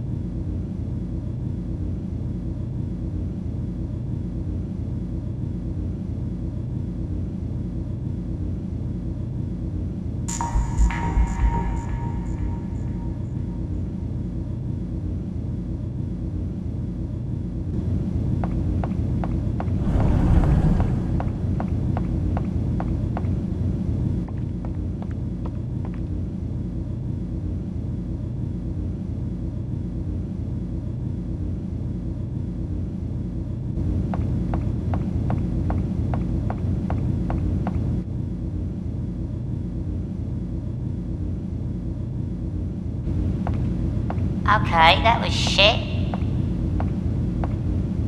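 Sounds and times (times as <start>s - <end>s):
low interior rumble: 17.4s - 24.3s
short whoosh: 19.7s - 21.7s.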